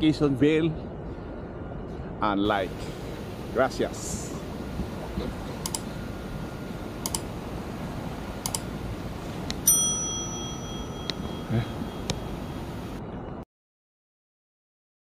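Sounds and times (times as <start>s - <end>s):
background hiss: 2.3s - 13.0s
notification bell ding: 9.6s - 12.6s.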